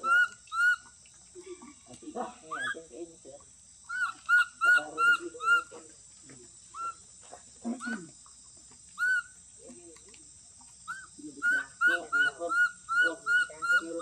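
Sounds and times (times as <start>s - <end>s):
baby monkey squeaky calls: 0.0s - 0.9s, 3.9s - 5.7s, 6.8s - 7.0s, 9.0s - 9.4s, 10.9s - 14.0s.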